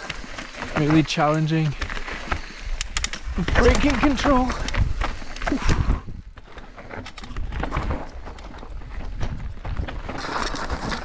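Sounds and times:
bike knocking and rattling: 0:00.0 - 0:11.0
tyres crunching over dirt and rock: 0:00.0 - 0:11.0.

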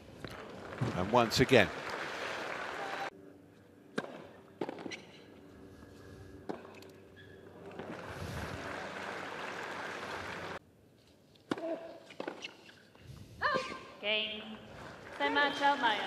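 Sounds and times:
crowd applause: 0:00.3 - 0:03.1, 0:07.7 - 0:10.6
tennis ball struck by racquets: 0:03.9 - 0:05.2, 0:11.5 - 0:12.6.

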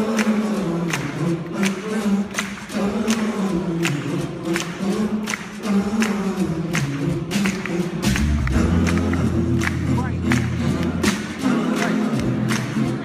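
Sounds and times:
a cappella singing in harmony: 0:00.0 - 0:13.0.

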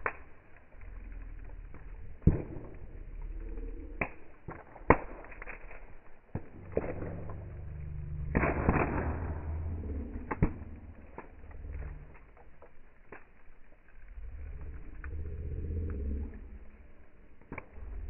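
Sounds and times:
low engine hum: 0:06.9 - 0:12.4.

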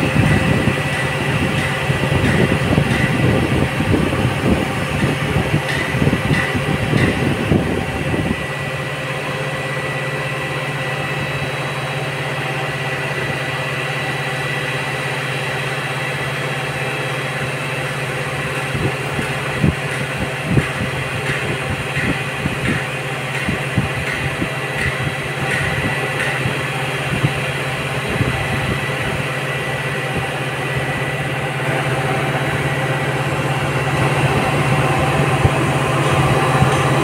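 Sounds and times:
diesel engine droning: 0:00.0 - 0:37.0.

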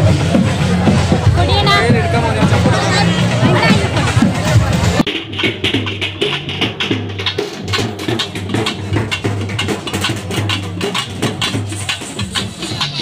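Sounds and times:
barrel drums drumming: 0:00.0 - 0:13.0.

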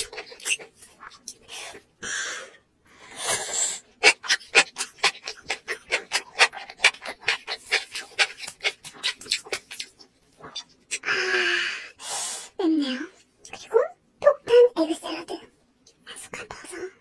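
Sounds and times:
wet chewing with clicks: 0:00.0 - 0:01.5, 0:04.0 - 0:11.0.

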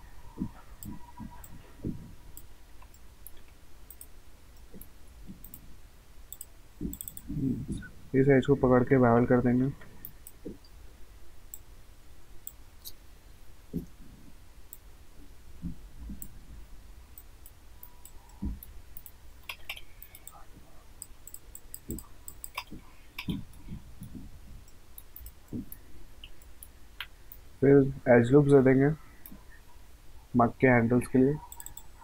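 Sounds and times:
faint low hum: 0:00.0 - 0:32.0
computer mouse clicking: 0:00.4 - 0:05.7, 0:06.3 - 0:07.8, 0:17.2 - 0:20.4, 0:21.0 - 0:27.4, 0:31.4 - 0:32.0.

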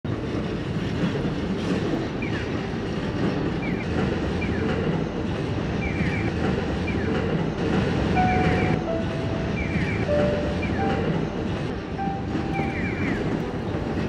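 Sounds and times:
train rumbling over bridge: 0:00.1 - 0:14.0
crossing signal chirps: 0:08.2 - 0:13.5.

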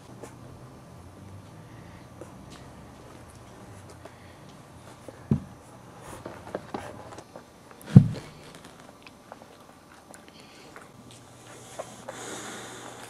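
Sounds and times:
puppies scuffling and chewing: 0:02.2 - 0:12.2
dull thump: 0:07.9 - 0:08.3.

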